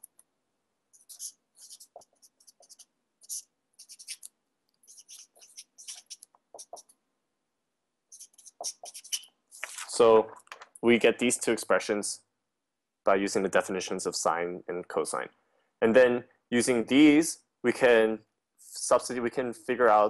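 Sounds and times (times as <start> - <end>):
pen scratching on paper: 0.9 - 6.9, 8.1 - 9.8.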